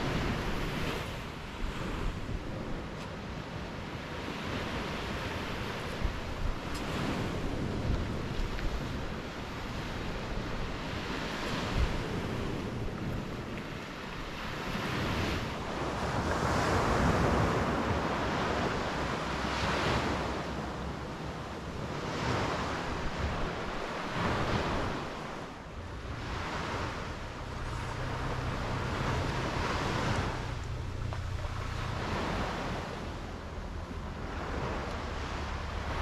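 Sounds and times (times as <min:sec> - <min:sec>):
ocean surf breaking: 0:00.0 - 0:36.0
wind buffeting microphone: 0:00.0 - 0:36.0.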